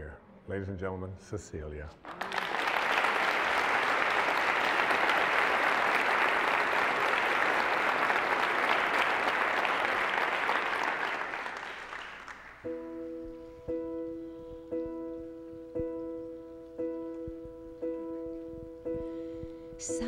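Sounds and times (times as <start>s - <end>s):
audience applauding: 2.0s - 12.7s.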